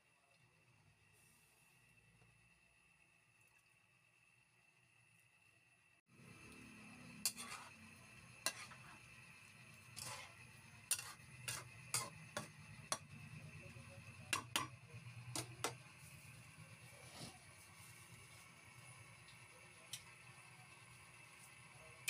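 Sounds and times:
metal spoon scraping a wok: 0:07.0 - 0:09.1, 0:09.7 - 0:13.2.

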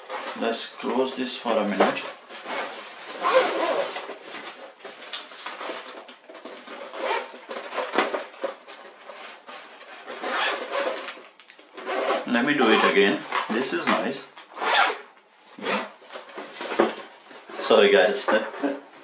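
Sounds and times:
zipper rasping: 0:02.0 - 0:04.2, 0:06.8 - 0:07.4, 0:09.3 - 0:11.2, 0:11.8 - 0:16.0.

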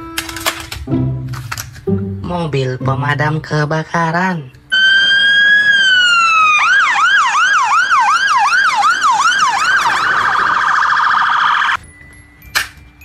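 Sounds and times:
fire engine siren: 0:04.7 - 0:11.8.

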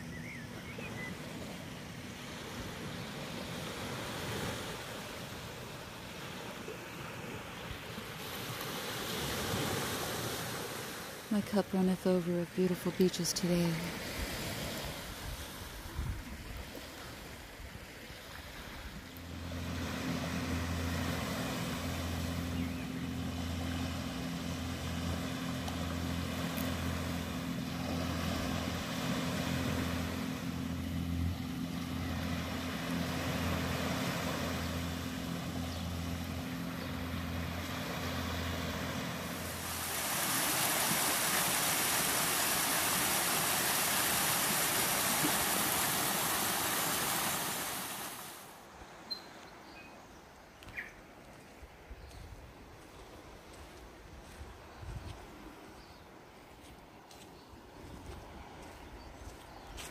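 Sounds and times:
pulsing low engine hum: 0:00.0 - 0:49.0, 0:51.1 - 0:59.9
small waves washing: 0:00.0 - 0:49.6
waterfall cascading over rocks: 0:39.5 - 0:48.4.

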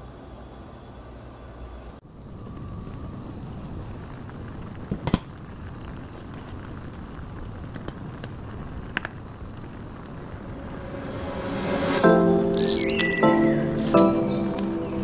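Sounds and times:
broth boiling and bubbling: 0:03.3 - 0:10.3.

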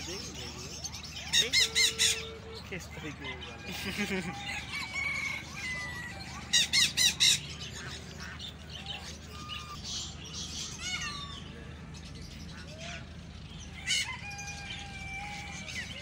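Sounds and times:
sharp squawks: 0:00.0 - 0:02.9
chickens and birds chirping: 0:00.0 - 0:16.0.

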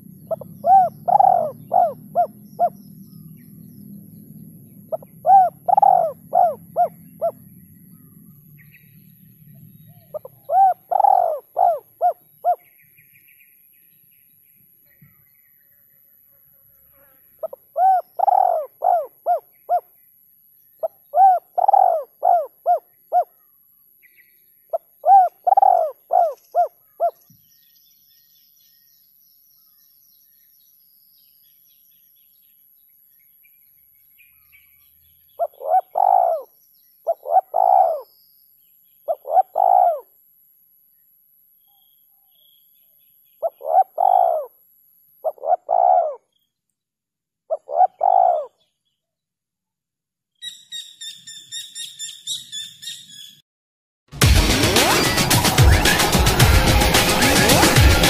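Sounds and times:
dove cooing: 0:00.0 - 0:03.0, 0:04.9 - 0:08.1, 0:09.5 - 0:12.7, 0:17.4 - 0:19.8, 0:20.8 - 0:23.3, 0:24.7 - 0:27.2, 0:35.4 - 0:36.5, 0:37.1 - 0:38.0, 0:39.1 - 0:40.1, 0:43.4 - 0:44.5, 0:45.2 - 0:46.2, 0:47.5 - 0:48.5.

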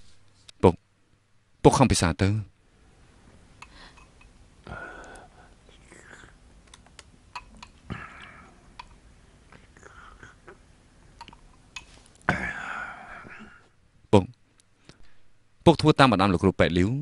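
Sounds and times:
person breathing and whispering: 0:03.6 - 0:06.4, 0:07.9 - 0:08.7, 0:09.4 - 0:10.6, 0:12.4 - 0:13.7.

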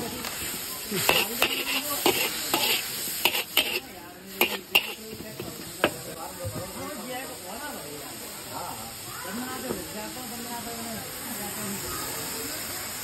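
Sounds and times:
food sizzling: 0:00.0 - 0:13.0
metal spatula clanking on wok: 0:00.4 - 0:06.1.

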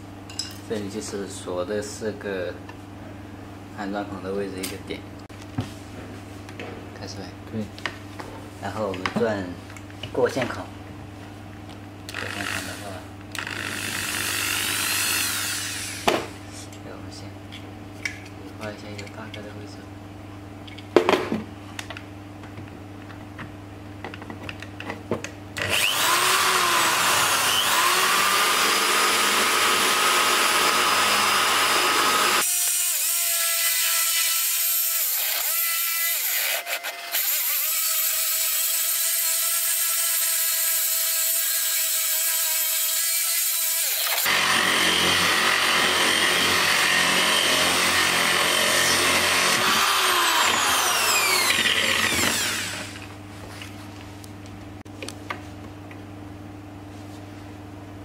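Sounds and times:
electric drill boring through wood: 0:12.1 - 0:16.1, 0:25.6 - 0:53.1.

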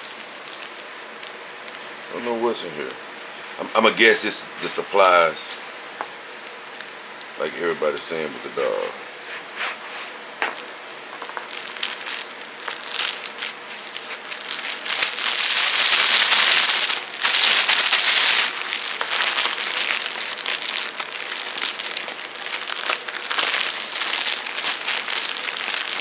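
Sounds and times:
packaging crinkling and rustling: 0:00.0 - 0:02.1, 0:10.5 - 0:26.0.

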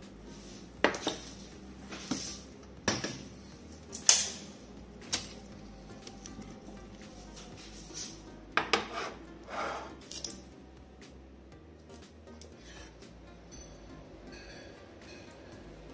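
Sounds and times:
kitchen things knocking and clinking: 0:00.8 - 0:01.4, 0:02.8 - 0:03.3, 0:08.6 - 0:09.1.

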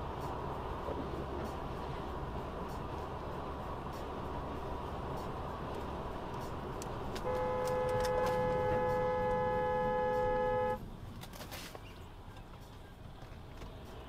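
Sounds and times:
road noise inside car: 0:00.0 - 0:14.0
car horn blast: 0:07.2 - 0:10.8.

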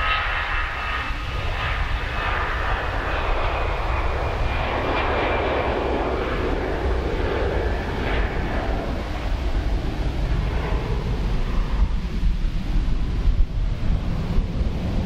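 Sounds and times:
jet engines at takeoff: 0:00.0 - 0:15.0.

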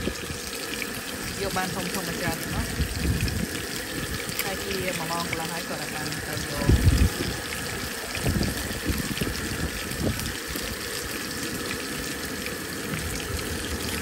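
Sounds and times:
low rumbles: 0:00.0 - 0:10.9
fish sizzling in frying pan: 0:00.0 - 0:14.0.

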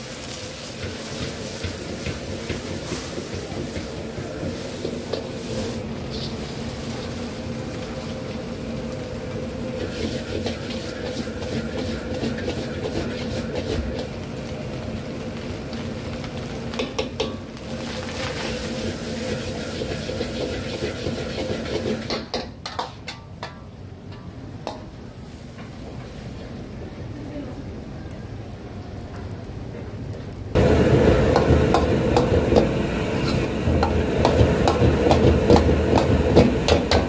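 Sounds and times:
food sizzling: 0:00.0 - 0:23.1, 0:30.5 - 0:37.0
metal spatula scraping a wok: 0:04.6 - 0:06.5, 0:09.8 - 0:14.0, 0:18.1 - 0:23.3.

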